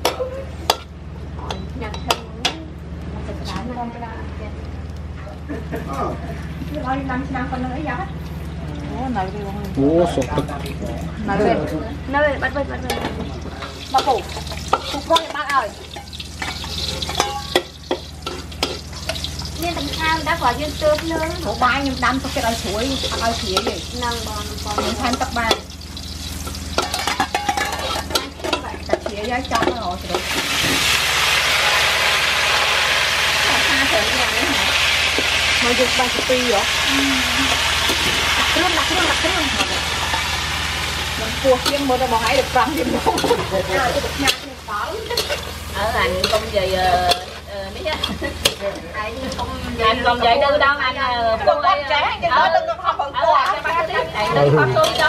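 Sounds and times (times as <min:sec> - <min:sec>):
oil sizzling: 0:12.1 - 0:55.0
spatula scraping a wok: 0:13.6 - 0:49.4
spatula clacking against pan: 0:14.0 - 0:20.0, 0:23.0 - 0:23.9, 0:24.7 - 0:30.3, 0:44.2 - 0:45.6, 0:46.2 - 0:49.4.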